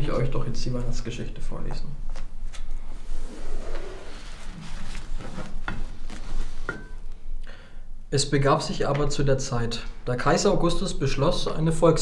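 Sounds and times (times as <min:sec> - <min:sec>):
paper rustling: 0:04.0 - 0:06.7.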